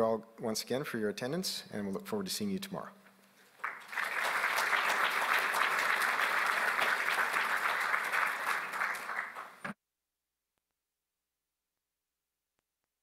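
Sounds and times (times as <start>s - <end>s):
small audience applauding: 3.5s - 9.8s.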